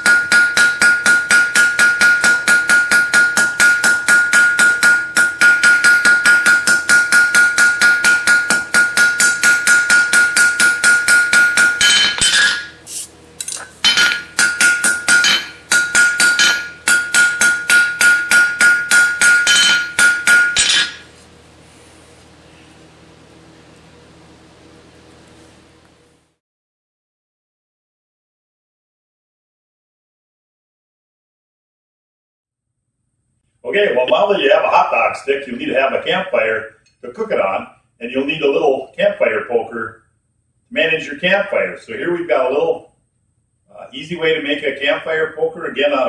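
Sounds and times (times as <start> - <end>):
anvil ringing: 0.0 - 12.8, 13.4 - 21.1
hammer striking metal on anvil: 0.0 - 12.8, 13.4 - 21.1.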